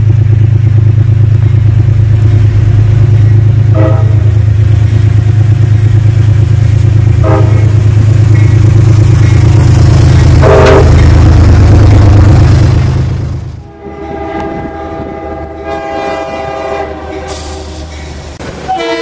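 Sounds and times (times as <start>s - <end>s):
diesel locomotive engine drone: 0.0s - 19.0s
train horn toots: 3.7s - 4.3s, 7.2s - 8.6s, 10.4s - 11.0s, 13.7s - 18.0s, 18.6s - 19.0s.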